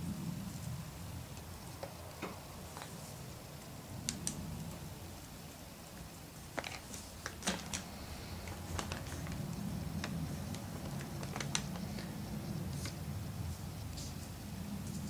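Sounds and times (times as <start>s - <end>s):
low steady hum: 0.0s - 15.0s
paper rustling: 6.4s - 15.0s.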